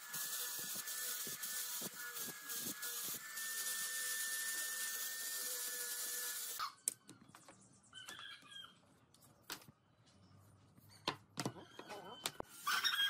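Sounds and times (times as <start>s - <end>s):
angle grinder sanding wood: 0.0s - 6.6s.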